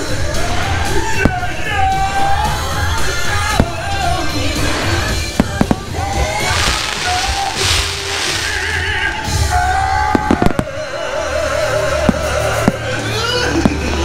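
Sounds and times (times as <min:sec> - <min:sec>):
music soundtrack: 0:00.0 - 0:14.0
fireworks hissing: 0:00.5 - 0:14.0
fireworks bangs: 0:03.2 - 0:14.0.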